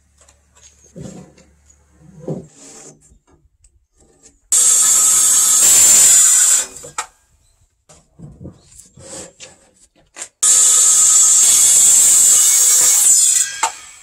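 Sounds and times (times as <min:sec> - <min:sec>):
circular saw cutting wood: 0:04.5 - 0:07.1, 0:10.4 - 0:14.0.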